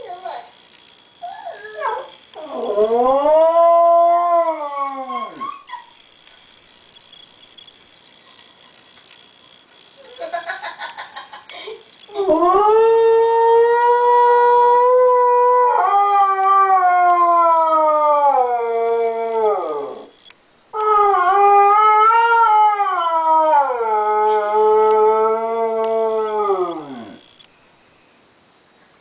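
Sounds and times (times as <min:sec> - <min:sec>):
dog howling: 0:01.2 - 0:06.0, 0:20.8 - 0:27.2.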